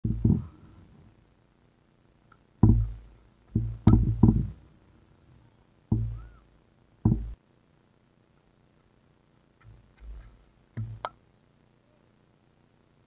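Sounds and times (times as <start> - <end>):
low muffled thumps: 0.0 - 0.6, 2.6 - 4.6, 5.9 - 6.4, 7.0 - 7.4.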